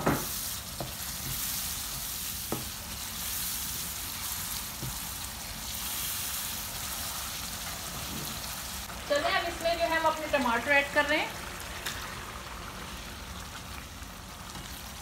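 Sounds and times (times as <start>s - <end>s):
masala sizzling in a frying pan: 0.0s - 15.0s
spatula stirring: 0.2s - 7.2s.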